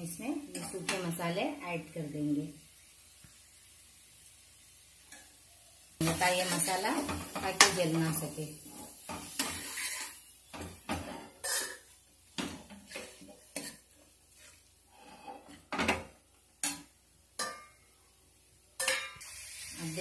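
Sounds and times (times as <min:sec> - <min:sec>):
steel spoon scraping a pan: 0:06.0 - 0:12.0, 0:12.6 - 0:15.6, 0:18.8 - 0:19.9.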